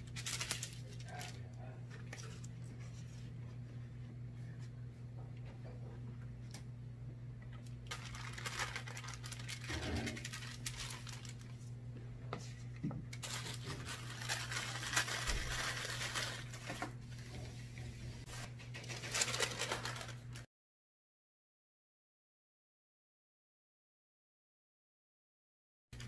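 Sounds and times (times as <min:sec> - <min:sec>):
paper crinkling: 0:00.0 - 0:03.3, 0:07.6 - 0:11.8, 0:12.4 - 0:20.5
steady low hum: 0:00.0 - 0:20.4.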